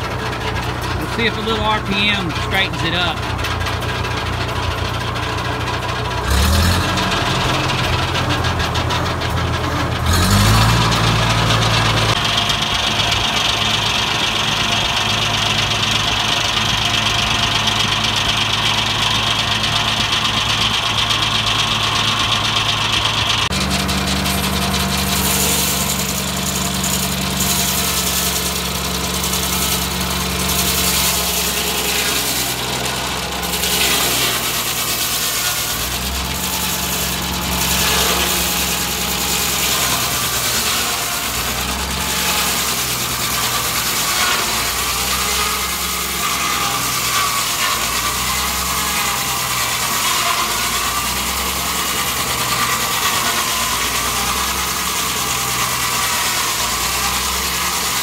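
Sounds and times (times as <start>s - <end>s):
saw blade high whine: 0.0s - 3.3s, 19.4s - 58.0s
sawmill engine revving: 0.0s - 58.0s.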